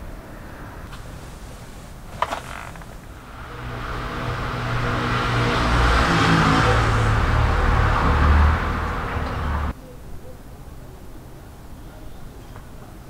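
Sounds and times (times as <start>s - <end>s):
car driving past: 0.4s - 9.7s.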